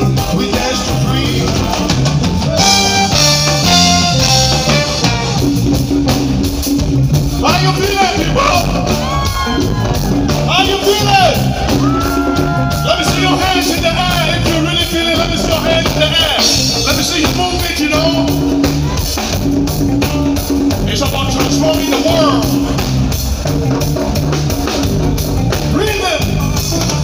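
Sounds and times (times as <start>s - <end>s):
person singing: 0.0s - 2.1s
bass: 0.0s - 27.0s
drum kit beat: 0.0s - 27.0s
electric guitar: 0.0s - 27.0s.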